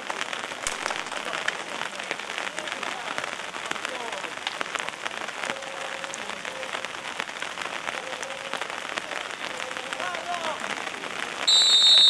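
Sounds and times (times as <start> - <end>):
raindrops ticking near microphone: 0.0 - 12.0
steady rain: 0.0 - 12.0.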